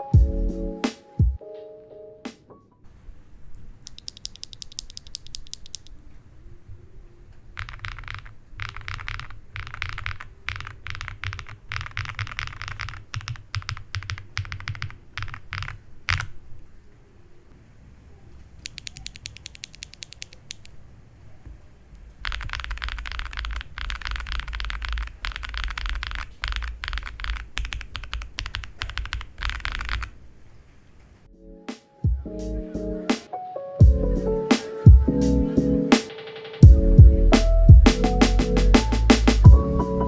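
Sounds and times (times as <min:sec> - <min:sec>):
mechanical keyboard key clacks: 0:03.9 - 0:06.0, 0:07.6 - 0:16.3, 0:18.6 - 0:20.8, 0:22.2 - 0:30.1.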